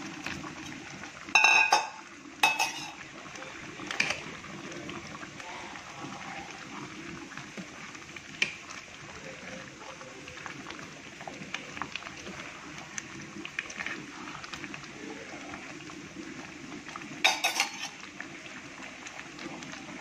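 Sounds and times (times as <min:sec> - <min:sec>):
metal spoon clinking steel bowl: 0:01.4 - 0:03.0, 0:17.3 - 0:17.9.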